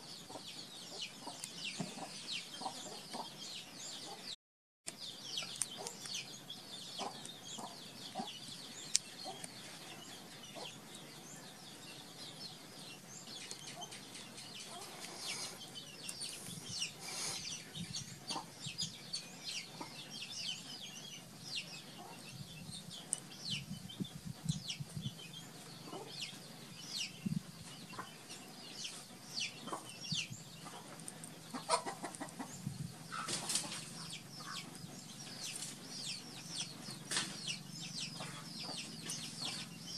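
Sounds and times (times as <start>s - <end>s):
chickens clucking: 0.0s - 4.4s, 5.2s - 39.9s.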